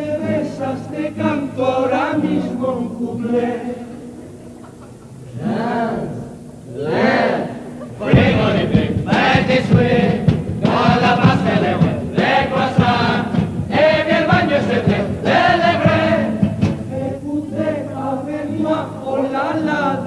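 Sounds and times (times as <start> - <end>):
male chorus singing: 0.0 - 4.2, 5.3 - 20.0
strummed guitars: 0.0 - 20.0
drum beat: 8.0 - 17.1.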